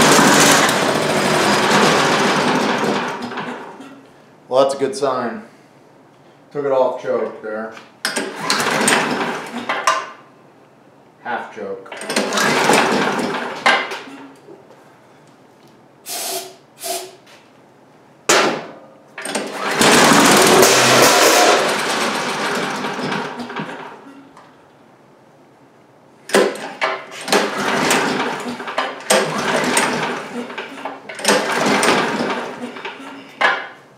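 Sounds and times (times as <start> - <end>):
leaf blower engine running: 0.0 - 3.4, 19.3 - 23.2, 27.4 - 30.6
recoil starter pulls: 0.0 - 3.7, 8.0 - 10.0, 11.9 - 14.2, 19.2 - 24.0, 26.3 - 33.7.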